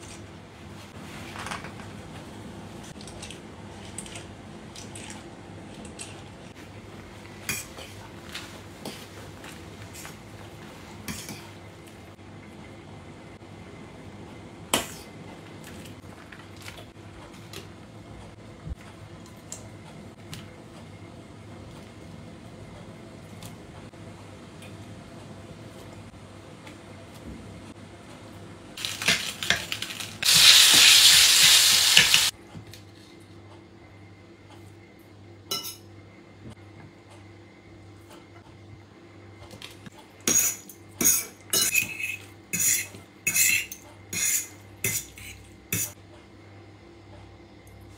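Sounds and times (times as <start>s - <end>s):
spaghetti sizzling in pan: 28.8s - 32.4s.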